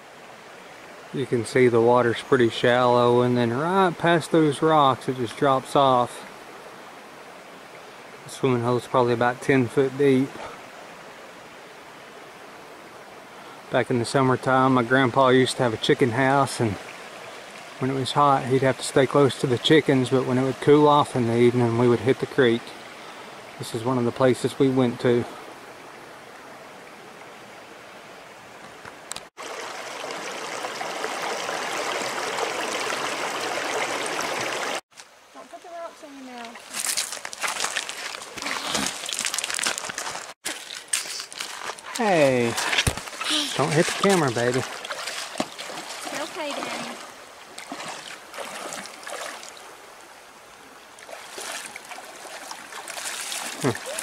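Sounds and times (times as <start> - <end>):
creek water rushing over rocks: 0.0 - 35.8, 36.4 - 54.0
water rushing over stones: 29.4 - 34.8, 36.6 - 54.0
feet splashing through water: 36.6 - 49.7, 51.0 - 54.0.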